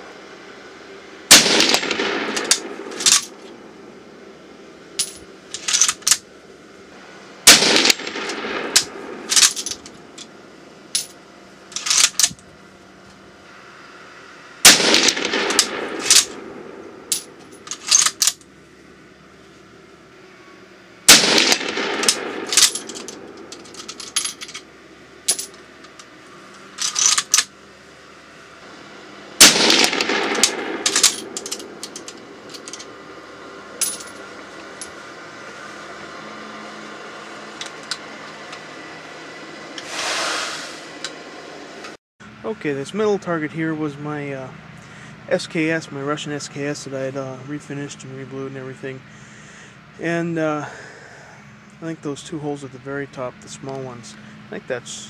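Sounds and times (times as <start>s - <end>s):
rifle shots echoing: 1.3s - 3.2s, 7.4s - 9.4s, 14.6s - 17.0s, 21.1s - 23.4s, 29.4s - 31.8s
rifle bolt clicks and knocks: 29.8s - 32.9s.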